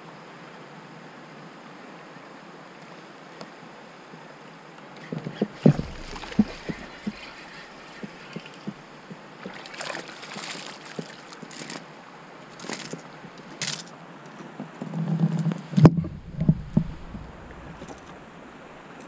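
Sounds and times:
water lapping around a kayak: 0:05.2 - 0:13.6, 0:16.0 - 0:19.0
low rumbling handling noise: 0:05.5 - 0:09.3, 0:15.2 - 0:19.0
sharp knock: 0:05.6 - 0:08.8
fish splashing: 0:05.6 - 0:11.8.

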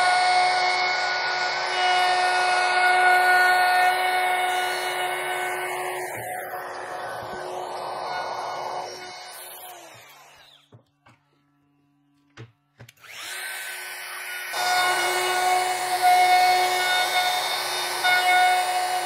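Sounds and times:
router whining: 0:00.0 - 0:19.0.

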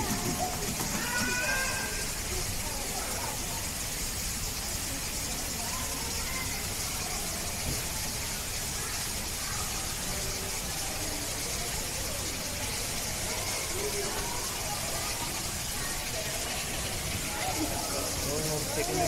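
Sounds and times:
faint scattered voices: 0:00.0 - 0:19.0
steady hissing noise: 0:00.0 - 0:19.0.

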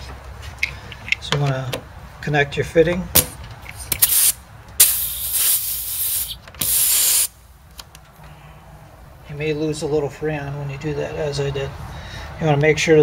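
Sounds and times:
refrigerant hissing spurts: 0:04.0 - 0:07.3.

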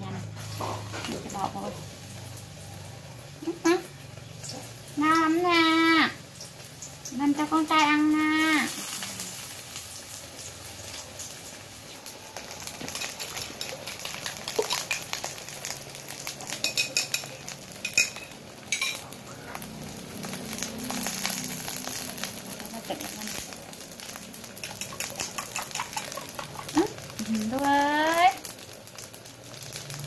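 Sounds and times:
food sizzling in a wok: 0:00.2 - 0:30.0
metal spoon clinking on wok: 0:16.5 - 0:19.2.

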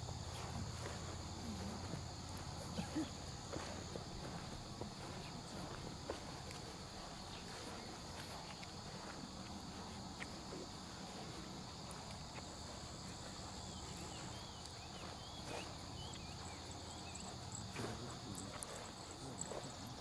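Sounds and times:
insects trilling: 0:00.0 - 0:20.0
bird chirping: 0:13.8 - 0:17.6.

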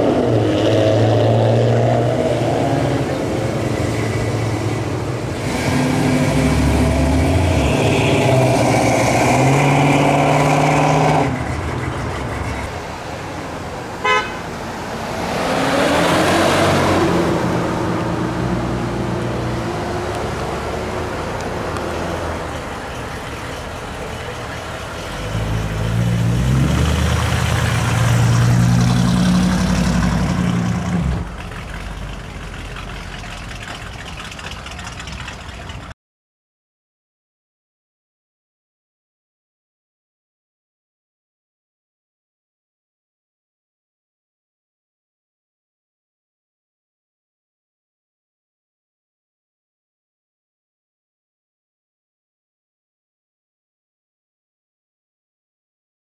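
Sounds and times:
car engines rumbling past: 0:00.0 - 0:35.9
car horn toot: 0:14.0 - 0:14.5.

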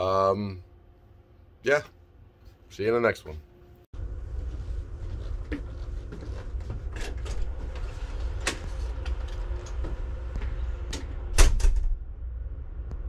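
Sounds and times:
low background rumble: 0:03.6 - 0:13.0
door heavy thump with rattle: 0:11.2 - 0:12.1.

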